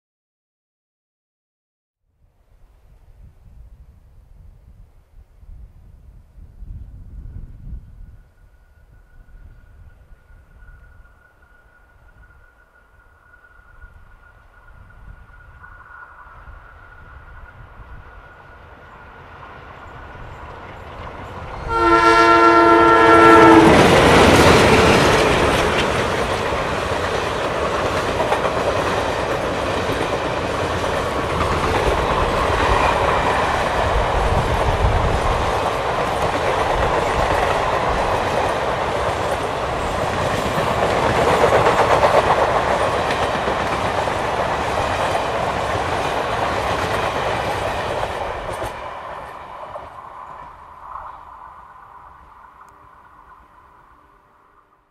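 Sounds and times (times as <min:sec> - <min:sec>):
diesel locomotive engines: 0:07.0 - 0:54.9
train wheels clickety-clack: 0:18.8 - 0:51.2
train horn blast: 0:21.6 - 0:25.1.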